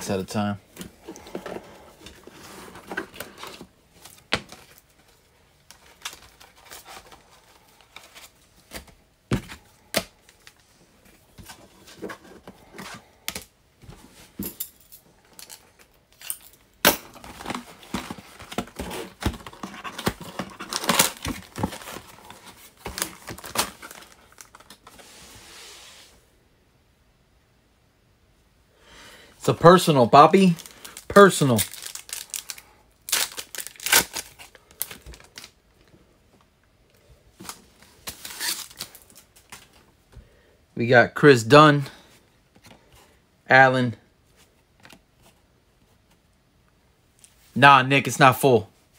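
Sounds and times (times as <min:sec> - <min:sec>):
plastic wrap tearing and crinkling: 0:17.2 - 0:24.8, 0:30.4 - 0:35.6, 0:38.0 - 0:39.2.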